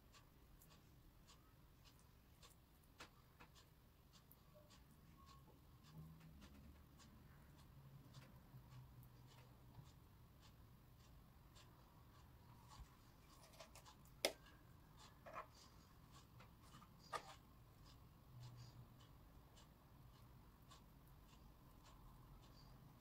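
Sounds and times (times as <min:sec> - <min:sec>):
knife tapping and scraping: 0:13.4 - 0:14.4.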